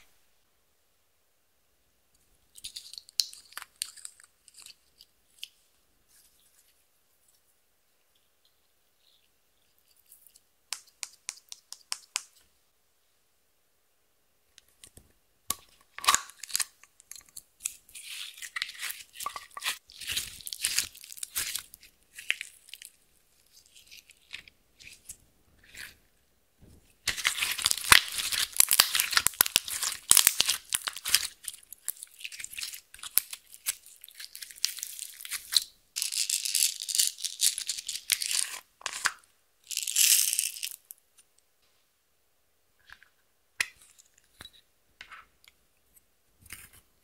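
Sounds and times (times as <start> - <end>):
plastic crinkling: 27.0 - 38.3.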